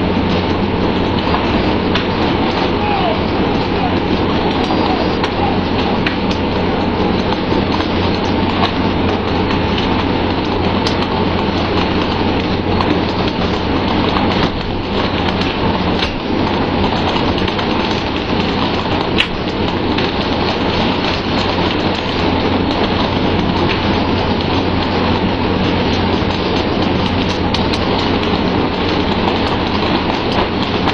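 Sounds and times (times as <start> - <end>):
boat engine hum: 0.0 - 30.9
water spray and churning sea: 0.0 - 30.9.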